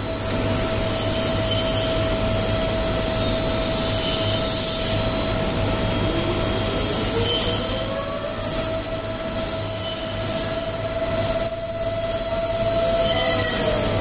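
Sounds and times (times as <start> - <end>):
drilling machine spindle whine: 0.0 - 14.0
rising machine whine: 6.1 - 14.0.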